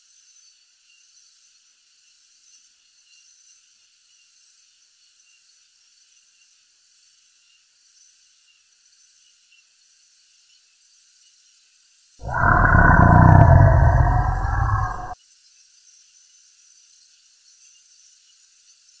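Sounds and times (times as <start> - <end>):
deep dinosaur roar: 12.2 - 15.2.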